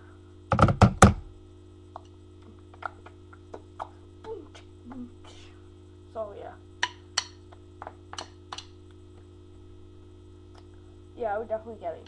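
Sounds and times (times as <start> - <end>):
drumsticks clicking and tapping: 6.8 - 7.4.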